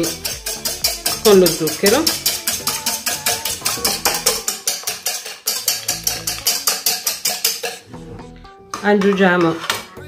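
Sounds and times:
whisk clicking against pan: 0.0 - 7.9.

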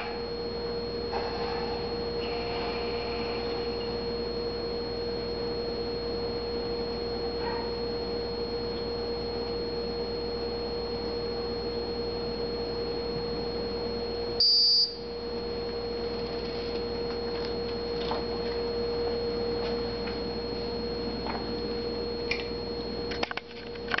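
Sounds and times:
motor electronic whine: 0.0 - 24.0
loud high beep: 14.4 - 15.0.

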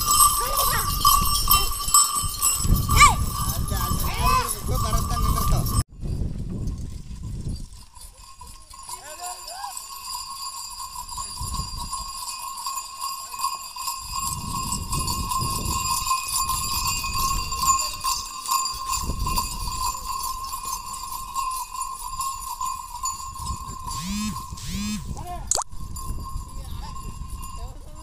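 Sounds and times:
jingling bells: 0.0 - 5.9, 7.6 - 28.0
hoof clops: 0.0 - 25.3
steady high ringing tone: 23.9 - 25.3.

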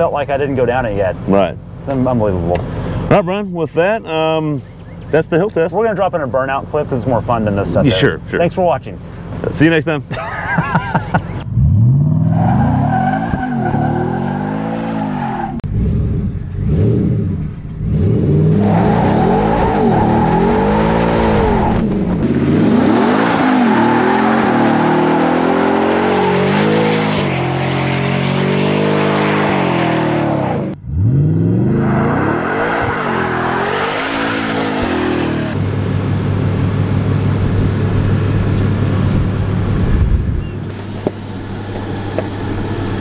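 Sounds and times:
engine revving: 11.4 - 35.7
tyres spinning and squealing: 12.1 - 15.6, 17.9 - 22.2, 22.8 - 29.9, 31.6 - 35.6.

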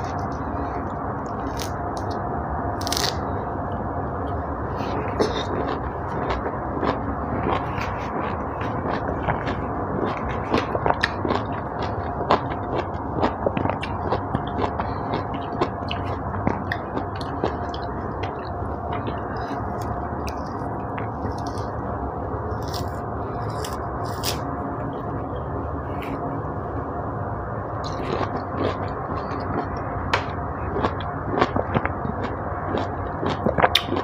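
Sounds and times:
orange rind tearing: 2.8 - 3.2, 22.6 - 24.5
mouth chewing sounds: 4.8 - 21.7, 27.8 - 34.0.

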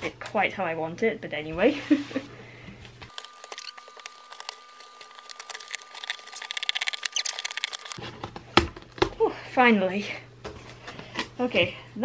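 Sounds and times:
packing tape crackling and peeling: 3.1 - 8.0.

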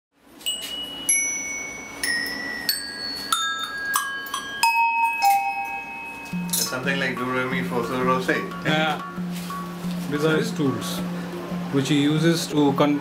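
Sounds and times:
cowbells struck by hand: 0.5 - 7.7.

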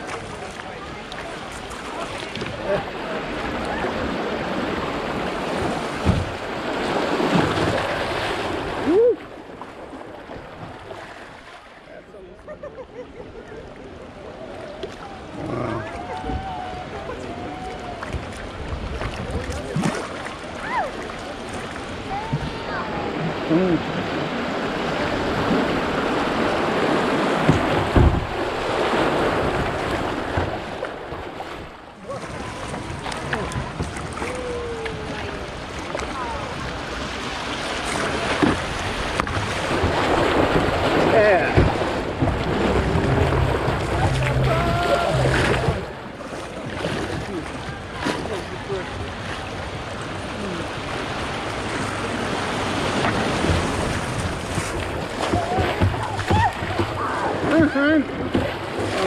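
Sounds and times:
water rushing over rapids: 0.0 - 11.7, 14.1 - 59.0
low thump: 27.4 - 28.4, 41.5 - 45.9
wind buffeting microphone: 38.4 - 48.0
river water rushing through cascade: 39.6 - 45.9
short rising-and-falling tone: 42.2 - 46.0.

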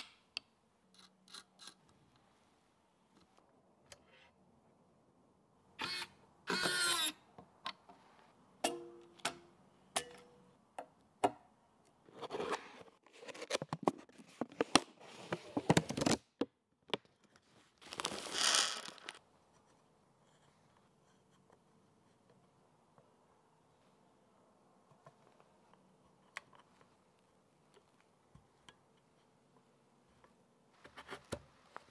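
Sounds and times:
paper envelope rustling: 17.8 - 19.2.

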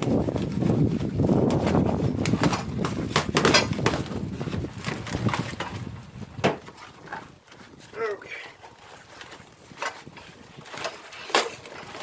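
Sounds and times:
paper and plastic rustling: 0.1 - 8.0, 8.6 - 12.0.

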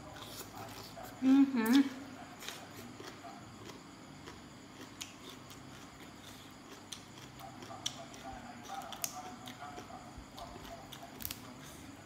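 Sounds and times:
plant stems snapping: 11.2 - 11.4.

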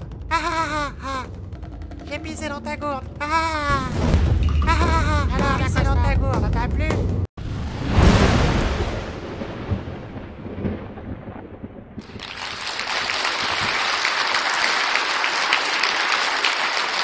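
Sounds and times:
heavy rolling boom: 7.4 - 12.2
crowd cheering and applauding: 12.0 - 17.0.

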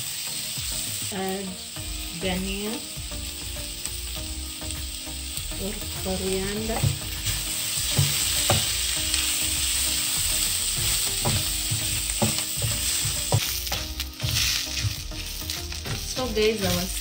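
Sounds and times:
food sizzling in oil: 0.0 - 17.0
wooden spoon scraping a pan: 6.4 - 17.0.

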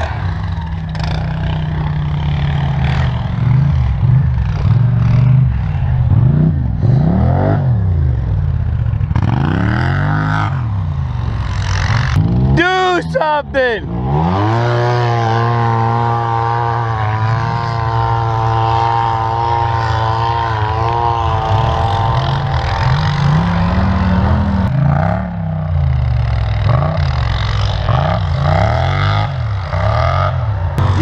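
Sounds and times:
atv engine revving: 0.0 - 31.0.

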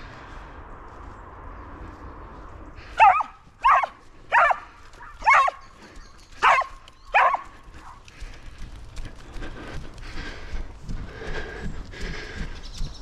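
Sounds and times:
dog barking: 3.0 - 5.6, 6.4 - 8.0.

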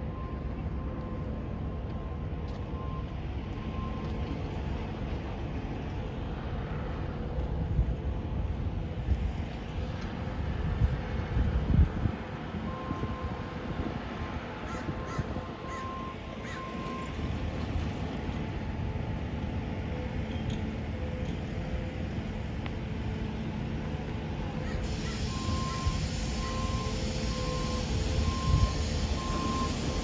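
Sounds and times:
reversing alarm beeping: 0.0 - 4.7, 12.5 - 13.7, 14.9 - 17.5, 24.5 - 30.0
steady low rumble: 0.0 - 16.4.

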